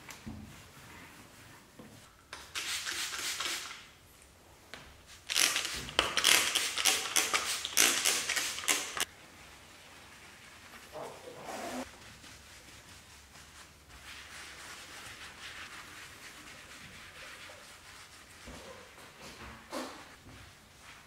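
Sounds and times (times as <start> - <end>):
spray bottle spraying: 2.4 - 3.8, 5.3 - 9.1.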